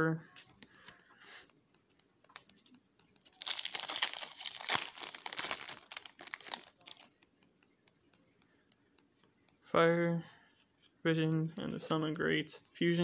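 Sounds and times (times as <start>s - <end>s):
foil wrapper crinkling and tearing: 3.3s - 7.1s.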